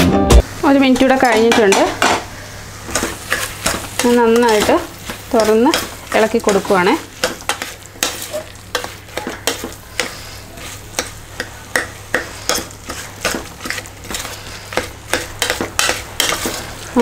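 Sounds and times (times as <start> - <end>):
low sizzle: 0.4 - 17.0.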